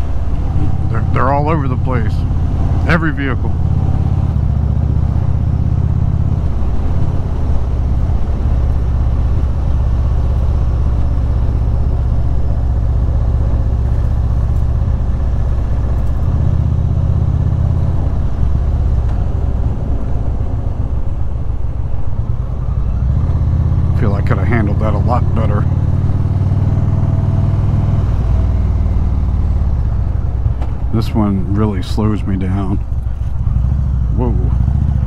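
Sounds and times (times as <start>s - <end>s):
motorcycle engine at road speed: 0.0s - 35.0s
wind noise: 2.2s - 35.0s.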